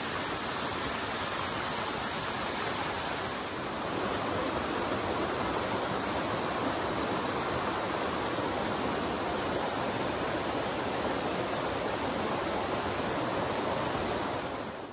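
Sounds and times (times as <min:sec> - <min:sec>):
water cascading over rocks: 0:00.0 - 0:14.9.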